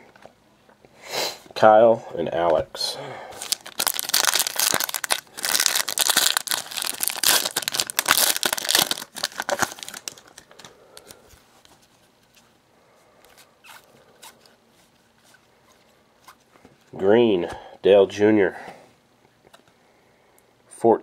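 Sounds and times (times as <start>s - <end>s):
foil pack tearing and crinkling: 3.4s - 11.2s
cards rustling: 3.4s - 12.5s.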